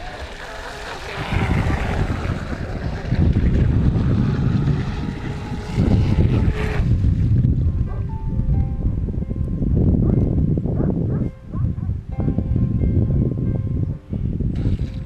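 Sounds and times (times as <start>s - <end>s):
rc powerboat motor hissing: 0.0s - 7.0s
wind buffeting microphone: 0.0s - 15.0s.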